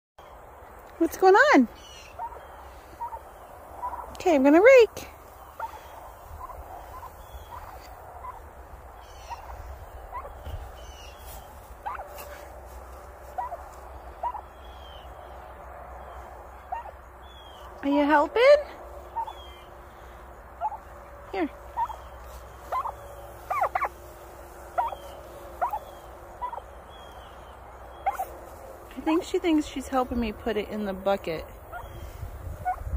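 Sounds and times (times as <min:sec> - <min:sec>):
turkey chirping: 0:01.7 - 0:04.2, 0:05.2 - 0:12.4, 0:13.3 - 0:18.0, 0:19.0 - 0:19.8, 0:20.6 - 0:28.4, 0:31.6 - 0:32.9.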